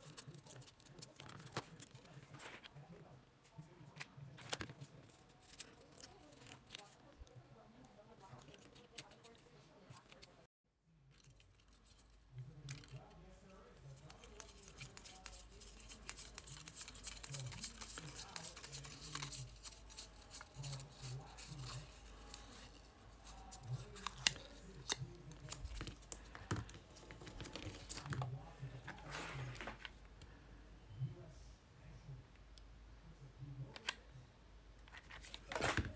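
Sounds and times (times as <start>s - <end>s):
paper rustling and crinkling: 0.0s - 2.8s, 4.4s - 7.2s, 13.8s - 30.0s, 34.9s - 35.9s
small clicks and scrapes: 11.1s - 29.9s.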